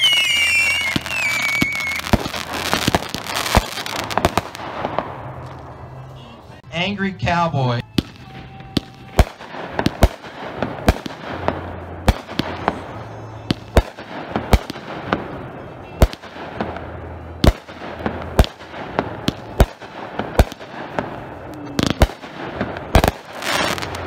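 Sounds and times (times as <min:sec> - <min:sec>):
firework shells launching and bursting: 0:00.0 - 0:05.6, 0:16.0 - 0:24.0.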